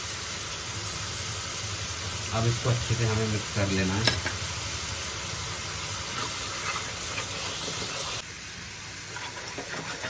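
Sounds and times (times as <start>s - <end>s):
eggs sizzling in pan: 0.0s - 10.0s.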